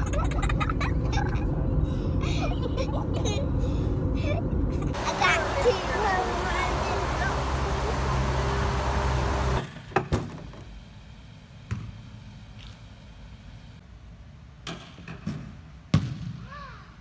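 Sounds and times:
steady outdoor hum: 0.0 - 17.0
echoing thuds of balls kicked: 15.4 - 16.4.

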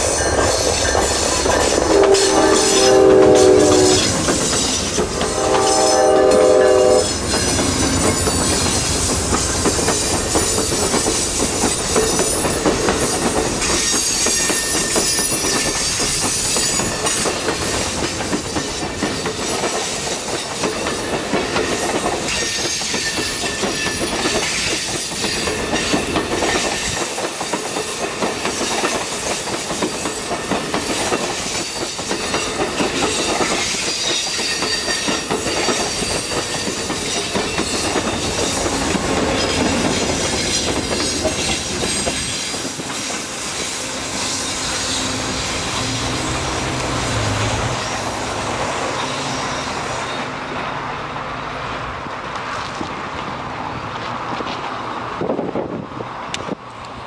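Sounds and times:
train cars rumbling over rails: 0.0 - 57.0
train horn: 1.5 - 8.4
wheel squeal: 6.6 - 17.9.

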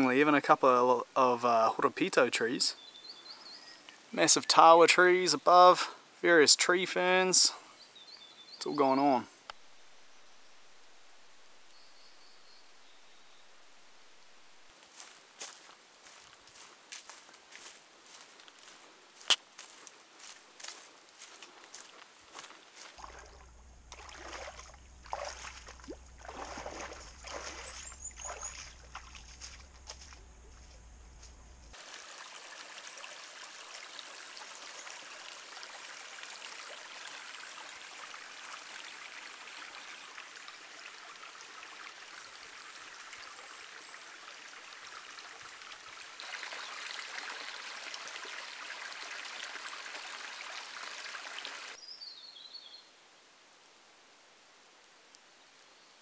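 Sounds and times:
stream trickling: 0.0 - 30.8, 31.7 - 51.8
low steady hum: 23.0 - 31.8.

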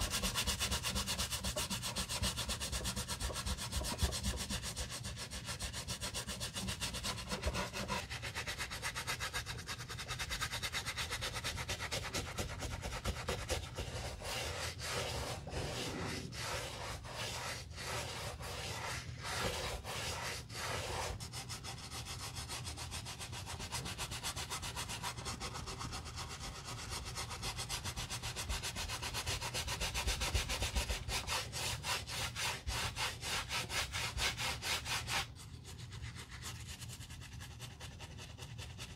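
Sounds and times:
bristle brush scrubbing leather: 0.0 - 22.4.

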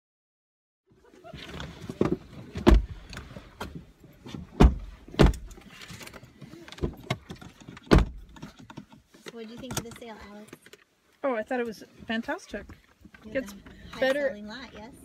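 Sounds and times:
rustling and shuffling in car: 0.9 - 15.0
heavy thumps and knocks: 2.0 - 3.0, 4.5 - 5.6, 7.8 - 8.6.

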